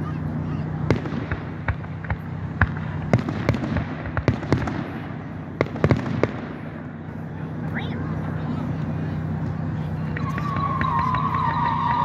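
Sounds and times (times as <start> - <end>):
fireworks bangs and pops: 0.8 - 7.1.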